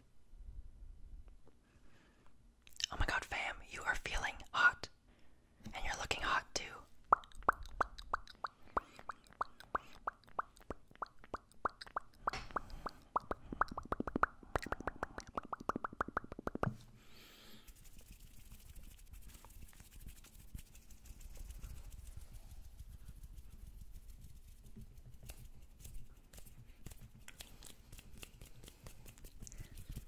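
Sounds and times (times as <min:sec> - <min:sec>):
hollow plopping hand pops: 0:07.1 - 0:16.8
soft rustle: 0:17.6 - 0:30.0.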